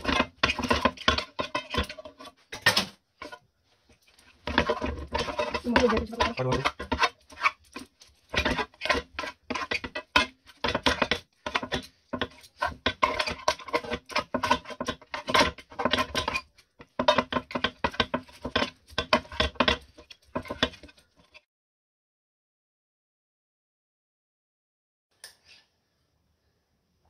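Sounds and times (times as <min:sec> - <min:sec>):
knife and fork scraping pan: 0:00.0 - 0:03.4, 0:04.1 - 0:21.4.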